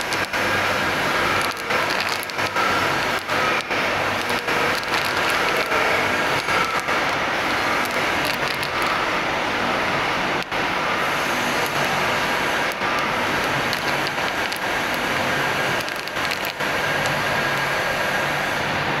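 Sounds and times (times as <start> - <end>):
workshop machinery hissing: 0.0 - 19.0.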